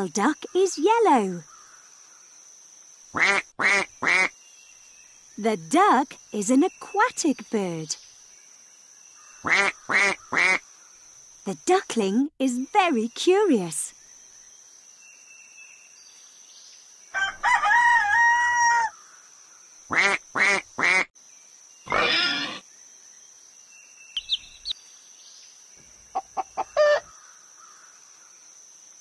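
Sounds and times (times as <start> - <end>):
rooster crowing: 17.2 - 19.0, 26.4 - 27.1
cartoon animal calls: 21.9 - 22.6.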